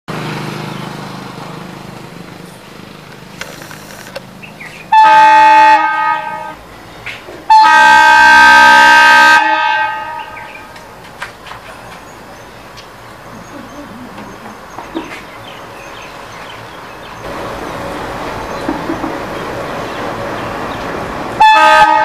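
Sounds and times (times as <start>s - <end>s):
diesel locomotive horn blasts: 4.9s - 6.7s, 7.4s - 10.8s, 21.3s - 22.0s.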